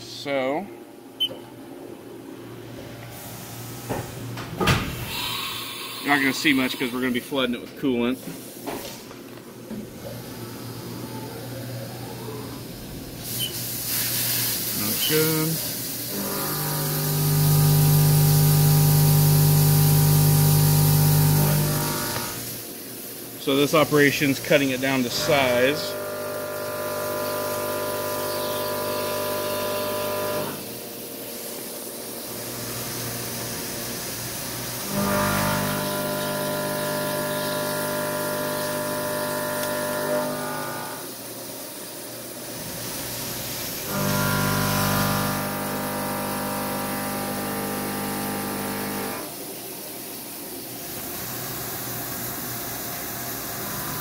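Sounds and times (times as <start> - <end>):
coolant spray hiss: 13.2 - 16.2, 17.0 - 25.9
coolant spray hissing: 13.2 - 16.2
milling machine cutting whine: 16.1 - 22.4, 23.4 - 30.7, 34.6 - 41.1, 43.8 - 49.3, 53.5 - 54.0.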